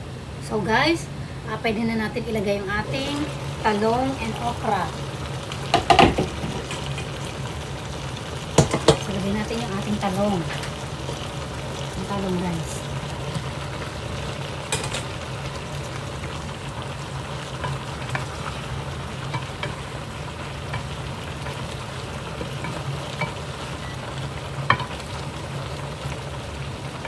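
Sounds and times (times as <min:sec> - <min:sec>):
steady sizzle: 0:00.0 - 0:27.0
spatula stirring vegetables in pot: 0:02.8 - 0:12.1, 0:12.8 - 0:27.0
spatula knocking against pan: 0:05.7 - 0:06.8, 0:08.6 - 0:09.0.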